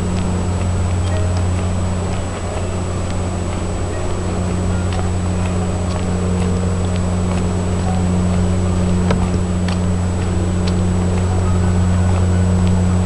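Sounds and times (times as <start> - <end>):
low mechanical engine hum: 0.0 - 13.0.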